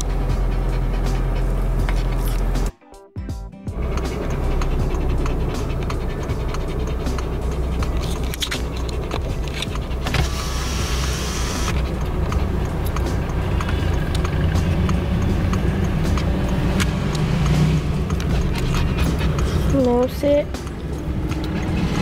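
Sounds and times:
car cabin road rumble: 0:00.0 - 0:02.7, 0:03.7 - 0:22.0.

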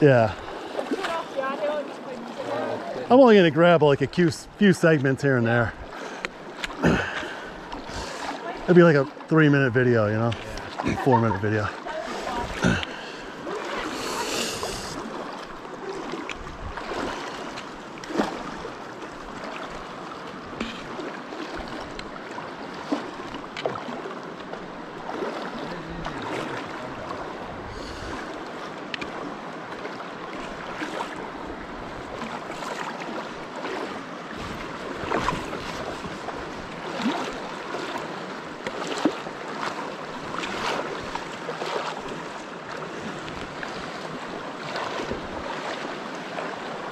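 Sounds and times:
feet splashing wading through water: 0:00.0 - 0:03.1, 0:05.6 - 0:09.4, 0:10.0 - 0:46.9
river water rushing: 0:00.0 - 0:46.9.

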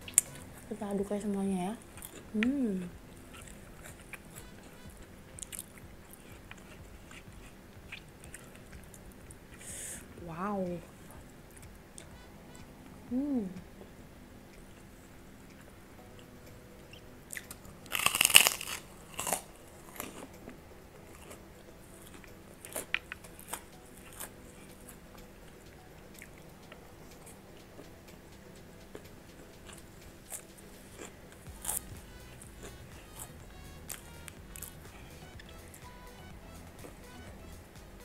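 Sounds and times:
person chewing crunchy food: 0:01.8 - 0:02.4, 0:03.1 - 0:09.7, 0:16.9 - 0:20.4, 0:22.0 - 0:24.9, 0:29.6 - 0:36.0.

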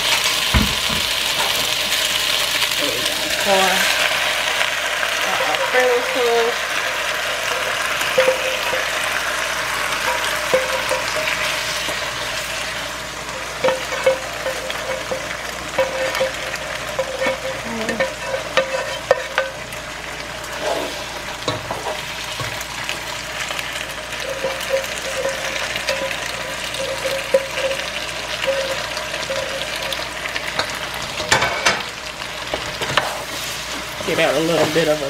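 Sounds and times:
chicken wings sizzling in oil: 0:00.0 - 0:35.0
spoon clinking against pot: 0:13.6 - 0:19.6.

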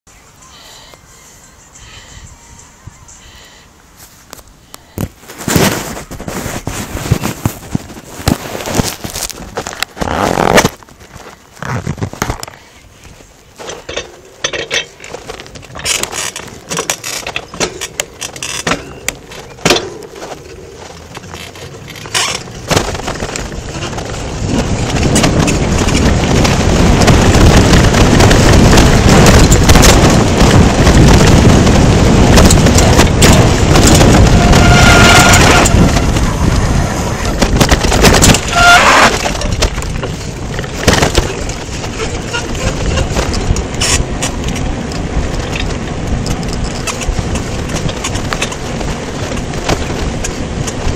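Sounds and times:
bicycle rattling over bumps: 0:04.4 - 0:50.9
wind rushing on microphone: 0:04.8 - 0:14.0, 0:22.0 - 0:50.9.

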